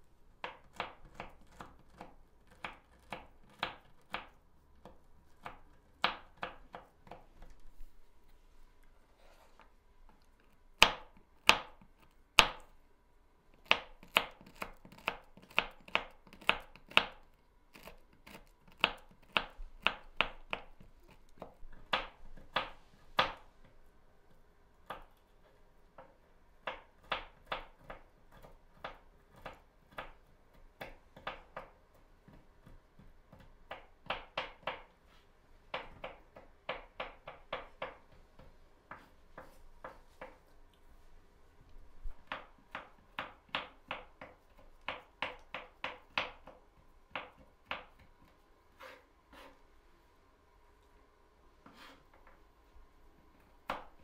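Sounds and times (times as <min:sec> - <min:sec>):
knife chopping on wooden board: 0:00.4 - 0:07.5, 0:10.8 - 0:11.8, 0:13.6 - 0:23.4, 0:42.2 - 0:48.0.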